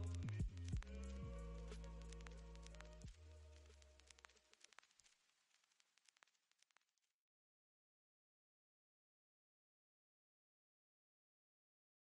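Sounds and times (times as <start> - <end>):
faint background music: 0.0 - 4.4.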